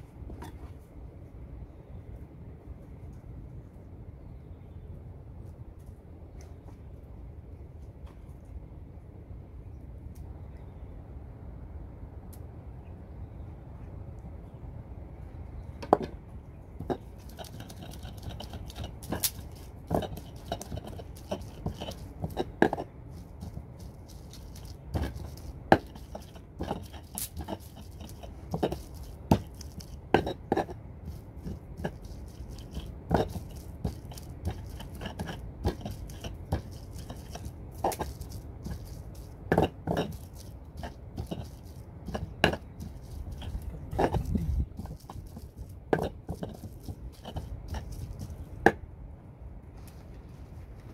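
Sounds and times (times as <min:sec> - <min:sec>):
stone pestle pounding in mortar: 0:16.8 - 0:48.8.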